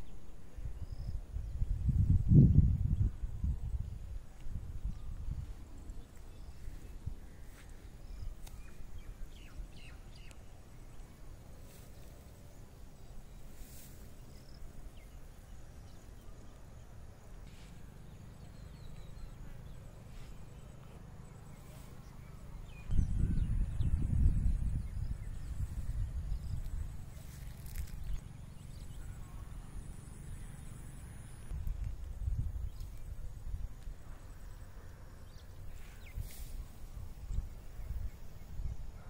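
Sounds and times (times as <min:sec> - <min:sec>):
wind on microphone: 0:00.0 - 0:10.2, 0:21.4 - 0:29.5, 0:31.4 - 0:39.0.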